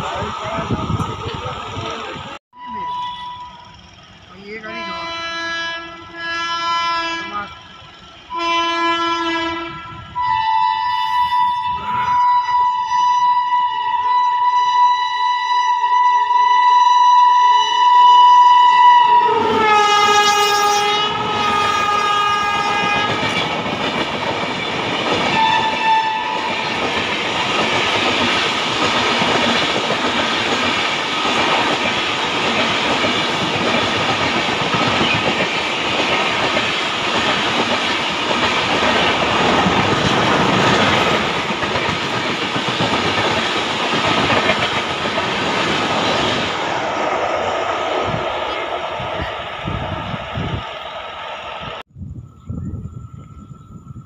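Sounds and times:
locomotive horn: 2.6s - 3.9s, 4.5s - 23.5s, 25.3s - 26.8s
train wheels clattering on rails: 21.0s - 50.6s.

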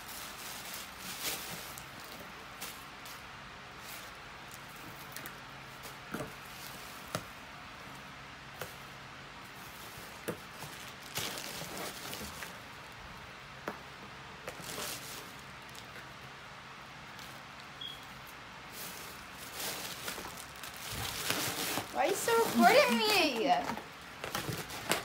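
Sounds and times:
paper rustling and crinkling: 0.0s - 7.2s, 9.6s - 12.7s, 14.4s - 16.1s, 18.7s - 25.0s.

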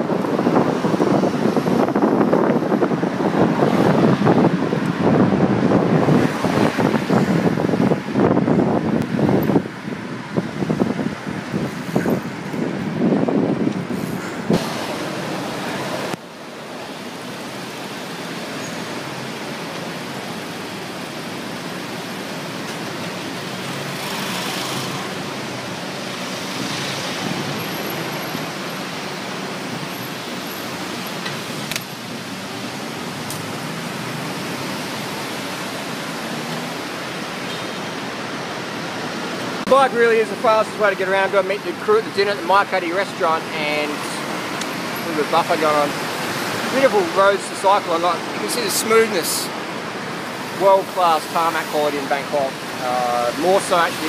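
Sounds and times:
wind buffeting microphone: 0.0s - 16.2s
city road traffic: 0.0s - 54.0s.

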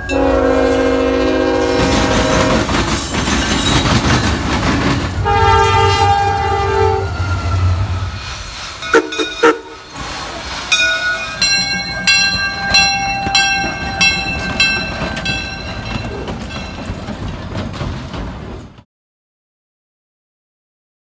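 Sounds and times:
steam whistle: 0.0s - 2.7s, 5.2s - 8.2s, 8.9s - 9.8s
locomotive steam chuffing: 0.0s - 5.8s, 6.7s - 18.8s.

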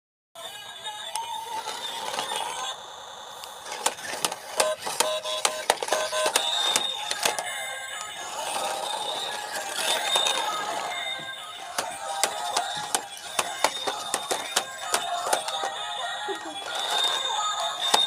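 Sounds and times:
electronic music with bleeping tones: 4.6s - 7.3s
toy car clattering on paving: 5.5s - 15.8s.

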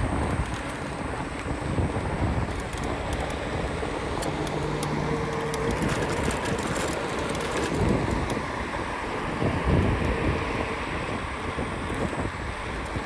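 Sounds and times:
light rattling clicks: 0.0s - 8.5s
road noise rumble: 0.0s - 13.0s
wind noise on microphone: 0.0s - 13.0s.

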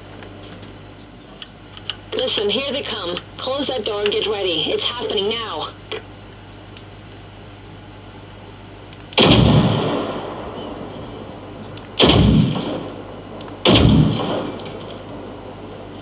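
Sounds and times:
rifle gunshots with echo: 9.2s - 10.8s, 11.9s - 15.4s.

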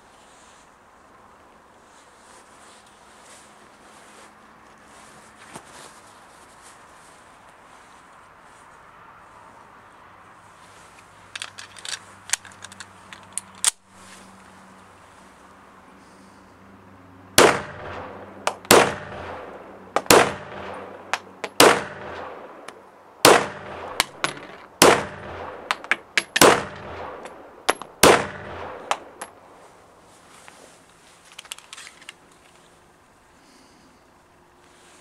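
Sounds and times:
magazine removal clicks: 11.3s - 13.8s, 31.3s - 32.5s
pistol shots: 17.4s - 29.3s.

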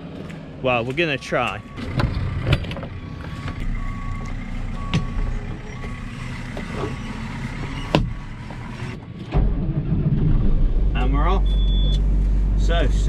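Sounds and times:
tractor engine idling: 1.1s - 8.7s
short repeating beep: 11.4s - 12.0s.

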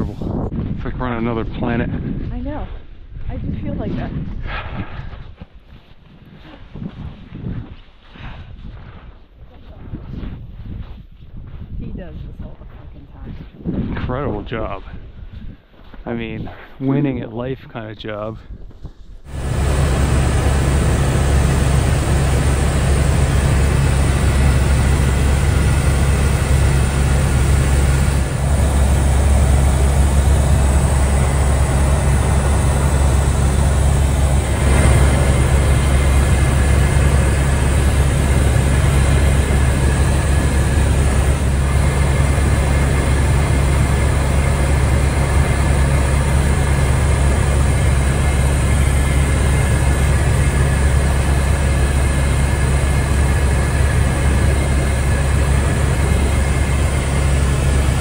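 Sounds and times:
helicopter drone: 19.3s - 58.0s.

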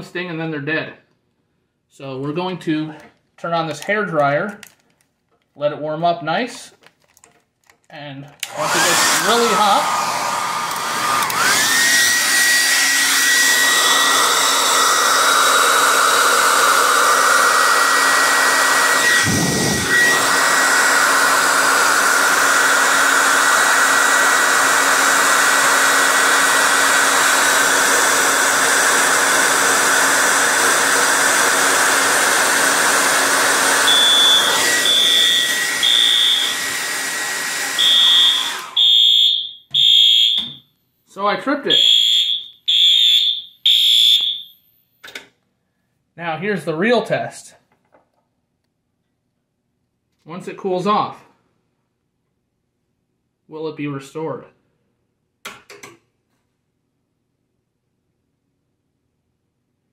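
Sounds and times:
hair dryer blowing: 8.4s - 40.6s, 41.7s - 44.5s
pulsed fire alarm horn: 33.9s - 36.6s, 37.8s - 40.6s, 41.7s - 44.7s.

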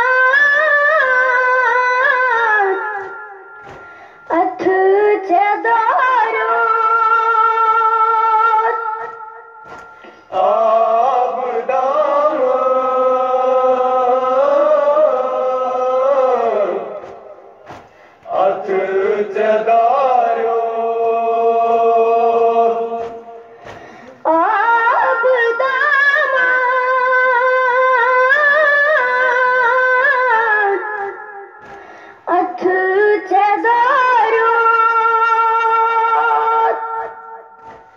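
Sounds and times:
boy chanting a lament: 4.3s - 8.8s.

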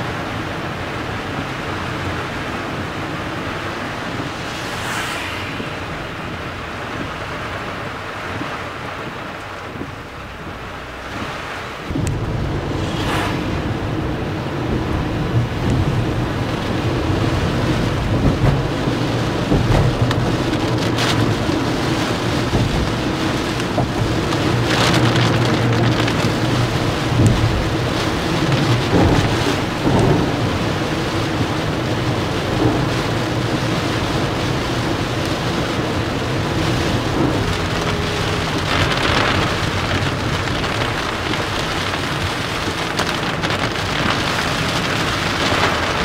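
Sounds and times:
heavy rain on a car: 0.0s - 4.7s, 6.7s - 46.0s
car engine and tyres humming: 0.0s - 46.0s
short swishes: 4.1s - 7.0s, 12.7s - 13.8s.

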